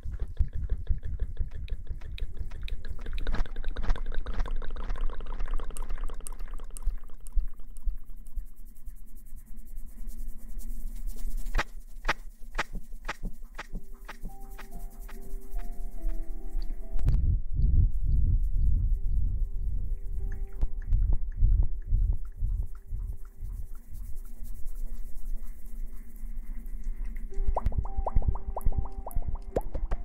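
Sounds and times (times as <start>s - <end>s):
sharp clicks and taps: 0.0s - 6.2s, 11.5s - 17.2s, 20.2s - 24.3s, 27.0s - 30.0s
hands crackling and rustling: 0.0s - 17.0s, 18.9s - 30.0s
steady low hum: 0.0s - 30.0s.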